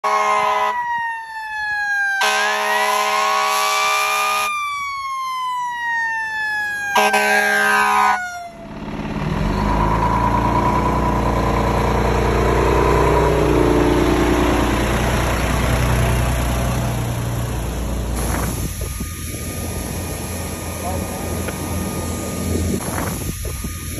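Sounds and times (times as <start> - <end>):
horn blasts: 0.0 - 0.8, 2.2 - 4.5, 6.9 - 8.6
fire truck siren: 0.0 - 23.9
diesel engine rumbling: 6.3 - 23.9.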